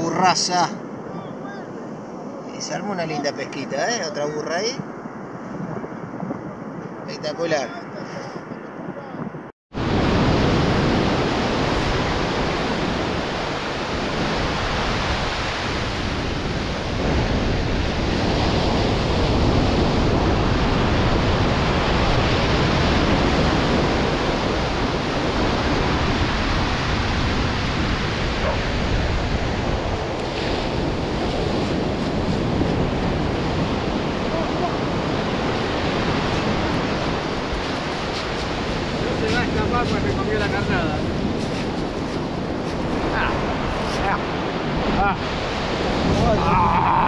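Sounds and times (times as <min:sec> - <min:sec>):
wind on microphone: 0:00.7 - 0:47.0
surf breaking on beach: 0:09.7 - 0:47.0.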